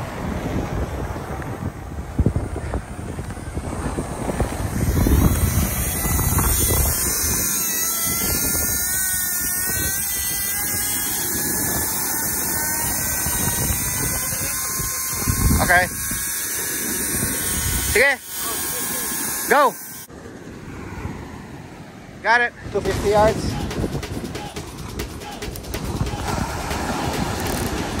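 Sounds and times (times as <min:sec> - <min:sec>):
wind buffeting microphone: 0:00.0 - 0:18.0, 0:22.6 - 0:28.0
fishing reel spool whirring: 0:03.5 - 0:20.1, 0:25.5 - 0:28.0.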